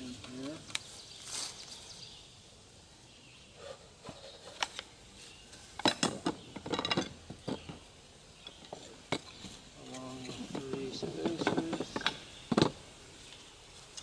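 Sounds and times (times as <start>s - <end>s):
wooden frames clattering and knocking: 5.7s - 12.9s.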